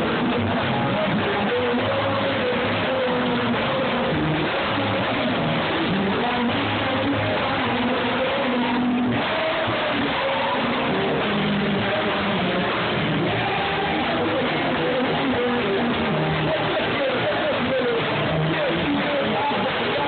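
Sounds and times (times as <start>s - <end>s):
congregation singing: 0.0s - 15.8s
electric bass guitar: 0.0s - 20.0s.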